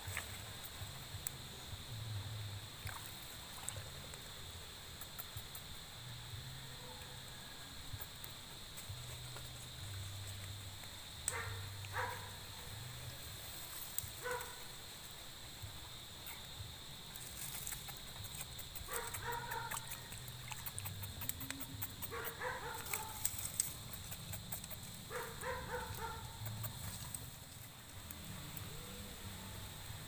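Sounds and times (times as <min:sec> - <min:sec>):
sharp clicks and crackles: 0:17.2 - 0:25.0.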